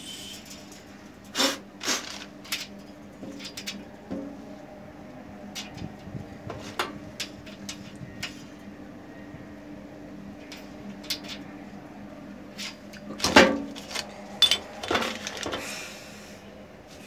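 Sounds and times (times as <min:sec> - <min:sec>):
metal parts clinking: 0:10.4 - 0:11.4, 0:12.6 - 0:15.6.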